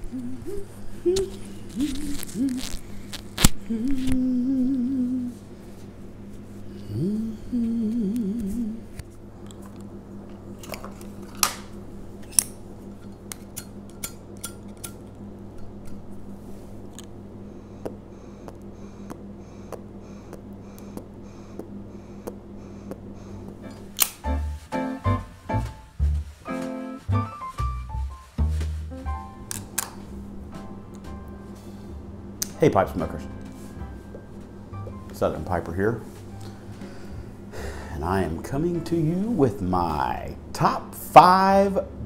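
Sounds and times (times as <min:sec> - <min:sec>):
man humming: 0:00.0 - 0:05.4, 0:06.7 - 0:09.0
low steady hum: 0:00.0 - 0:42.0
pipe and lighter clicks: 0:12.2 - 0:16.0, 0:24.0 - 0:24.2.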